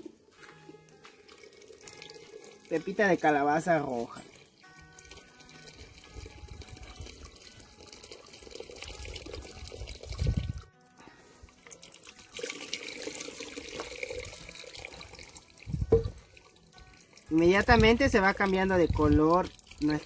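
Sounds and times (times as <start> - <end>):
liquid pouring into boiling pot: 1.2 - 10.6, 11.5 - 20.0
loud thump: 15.9 - 16.2.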